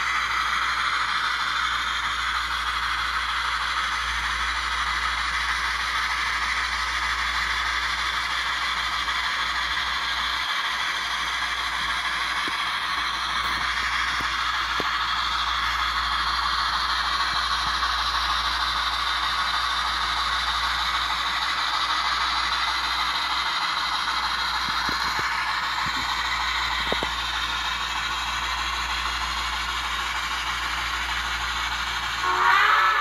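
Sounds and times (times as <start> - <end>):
faint mechanical clatter: 0.0 - 32.2
steam whistle blowing: 32.2 - 33.0.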